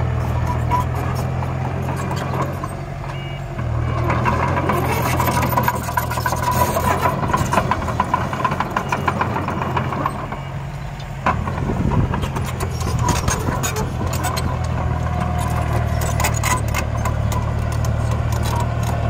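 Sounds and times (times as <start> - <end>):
diesel engine under load: 0.0 - 19.0
metallic clanking and rattling: 4.1 - 10.5, 11.2 - 19.0.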